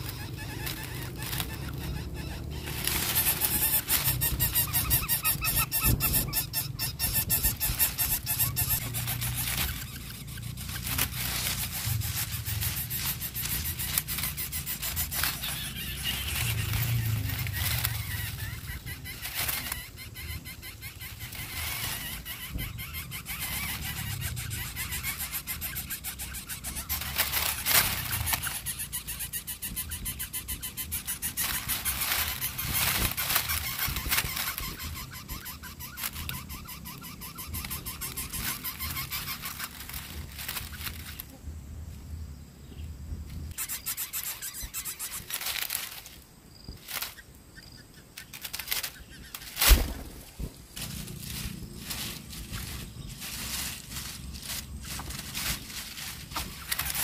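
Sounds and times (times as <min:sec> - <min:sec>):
bird chicks calling: 0:00.0 - 0:57.0
steady low rumble: 0:39.6 - 0:43.6, 0:49.9 - 0:57.0.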